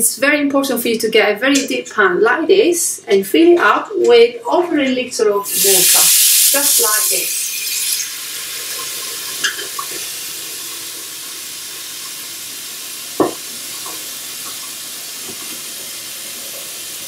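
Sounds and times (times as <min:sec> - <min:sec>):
tap water running into a pan: 0:05.5 - 0:17.0
knock on metal pan: 0:13.2 - 0:13.4.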